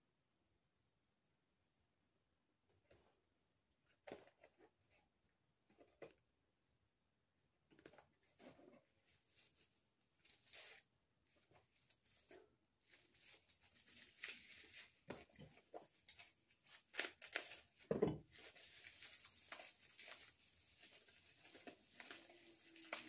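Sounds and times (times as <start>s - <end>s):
paper and plastic crinkling: 7.8s - 23.0s.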